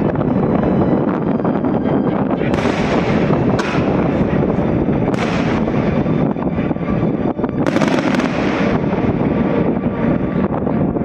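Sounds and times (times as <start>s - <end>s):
firework rumble and crackle: 0.0s - 11.0s
firework shells bursting: 2.5s - 4.5s, 5.1s - 6.0s, 7.6s - 9.2s.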